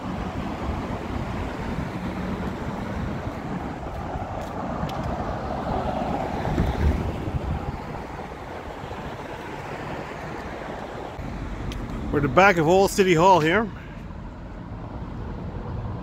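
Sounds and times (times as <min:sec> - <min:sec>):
wind on microphone: 0:00.0 - 0:11.2
street traffic: 0:00.0 - 0:16.0
vehicle passing: 0:00.0 - 0:16.0.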